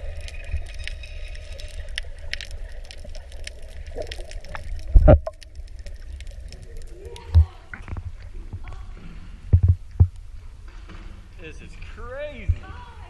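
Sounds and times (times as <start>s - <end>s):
crackling clicks: 0.0s - 8.7s
underwater rumble of moving water: 0.0s - 13.0s.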